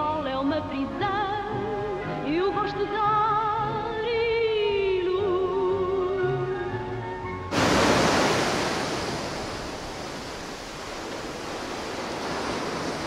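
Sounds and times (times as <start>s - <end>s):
surf breaking on rocks: 7.5s - 13.0s.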